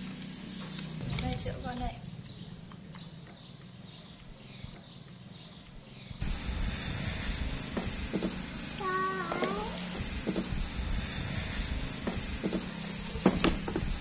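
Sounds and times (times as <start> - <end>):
high chirping: 0.4 - 9.2
low rumble: 6.2 - 8.8, 9.6 - 14.0.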